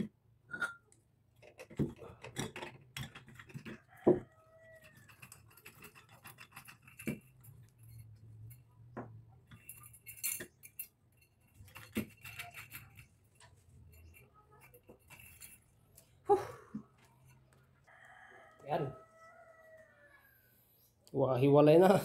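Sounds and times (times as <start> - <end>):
metal parts clinking: 4.8 - 8.7, 9.4 - 16.1.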